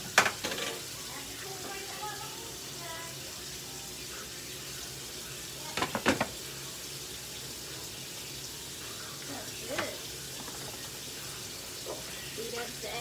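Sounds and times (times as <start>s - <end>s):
sizzling pan: 0.0s - 13.0s
lid clattering on a skillet: 0.1s - 0.9s, 5.8s - 6.4s.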